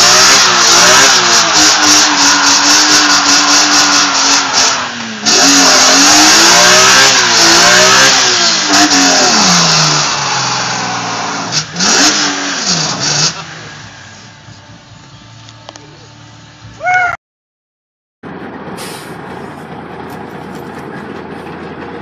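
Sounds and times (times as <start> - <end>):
car engine at high revs: 0.0 - 14.4.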